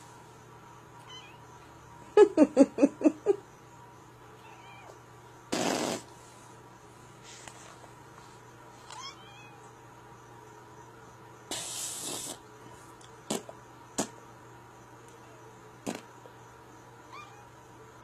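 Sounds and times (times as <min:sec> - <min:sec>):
steady low hum: 0:00.0 - 0:18.0
animal hissing: 0:05.5 - 0:06.2, 0:11.5 - 0:12.5.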